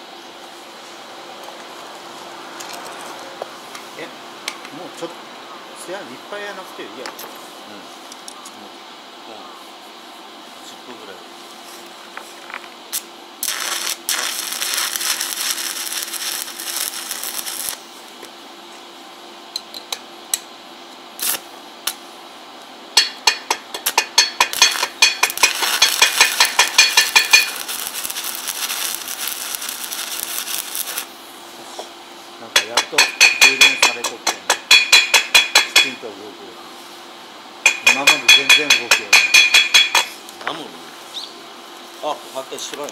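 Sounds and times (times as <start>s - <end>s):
arc welding hissing and crackling: 5.8s - 42.9s.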